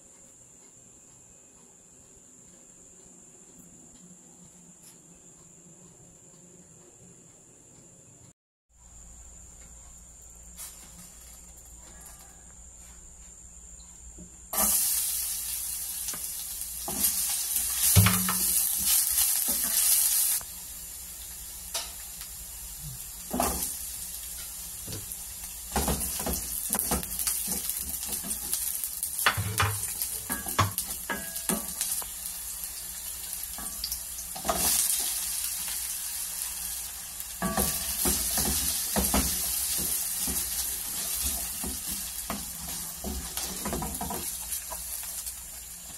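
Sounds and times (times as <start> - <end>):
food sizzling in hot oil: 14.5 - 45.9.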